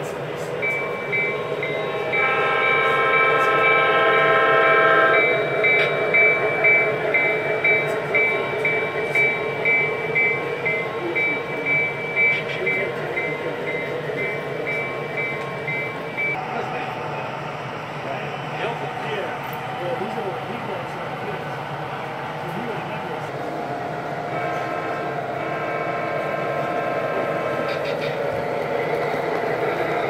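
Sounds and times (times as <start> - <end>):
running hum: 0.0 - 30.0
model train horn chord: 1.9 - 5.5.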